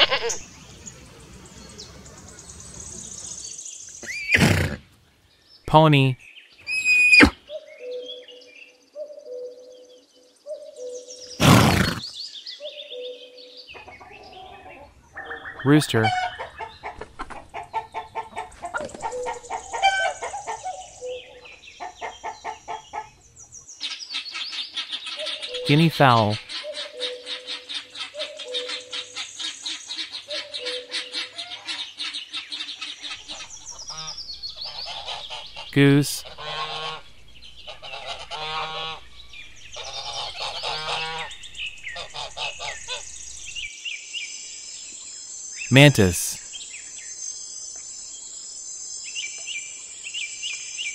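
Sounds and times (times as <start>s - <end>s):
chickens clucking: 13.8s - 23.2s, 33.1s - 43.4s
goose honking: 33.3s - 37.1s, 37.7s - 39.1s, 39.8s - 41.3s, 42.0s - 43.0s.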